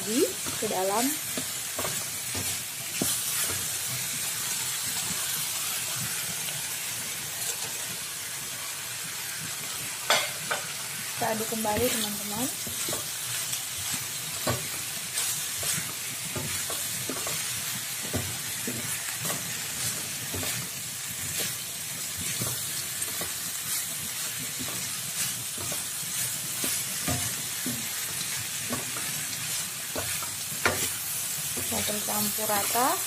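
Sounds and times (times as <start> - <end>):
food sizzling: 0.0 - 33.0
spatula scraping a wok: 11.7 - 32.8.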